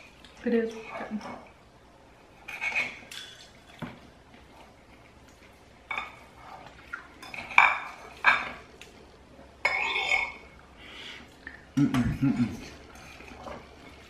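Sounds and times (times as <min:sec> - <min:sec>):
cutlery scraping a ceramic bowl: 0:02.4 - 0:03.9, 0:05.9 - 0:08.6, 0:09.6 - 0:10.4, 0:12.5 - 0:14.0.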